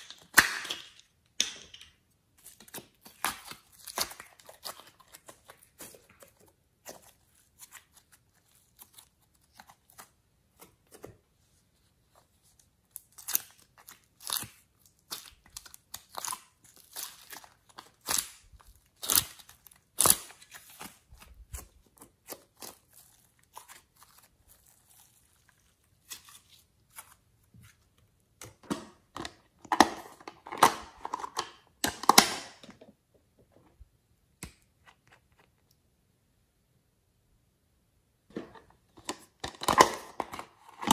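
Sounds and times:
clay being squeezed and torn: 2.3s - 11.1s, 12.1s - 28.7s.

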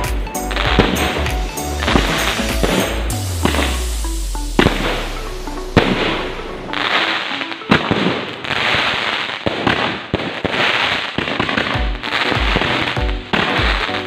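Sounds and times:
background music with bass beat: 0.0s - 7.3s, 11.5s - 14.0s
fireworks popping and crackling: 0.0s - 14.0s.

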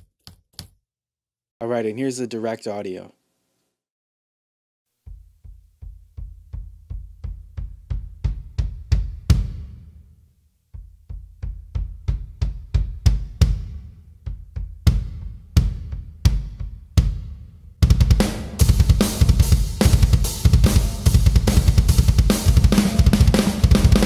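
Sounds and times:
electronic bass drum kicks: 5.1s - 9.9s, 10.8s - 24.0s.

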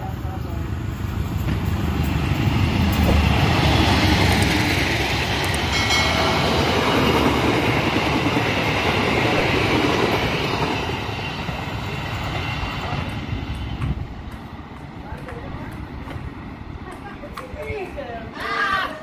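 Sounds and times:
train coaches roaring by: 0.0s - 19.0s
high wheel ring: 5.7s - 7.6s.

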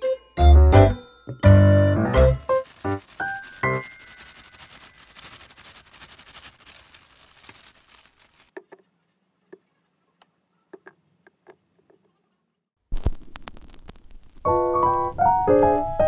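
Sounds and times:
plastic sheet crinkling: 2.1s - 8.6s
powder rustling into glass jar: 2.2s - 8.8s.

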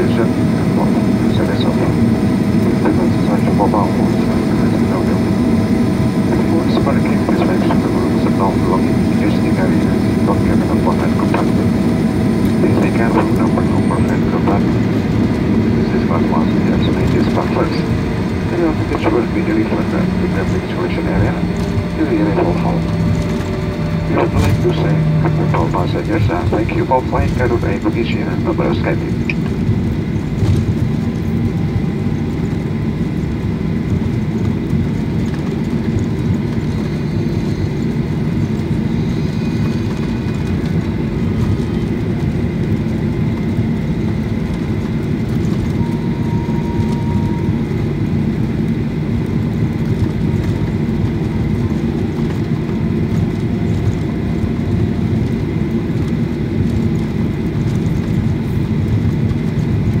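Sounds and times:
jet engine low rumble: 0.0s - 60.0s
faint high whine: 15.8s - 29.4s, 45.6s - 48.1s.

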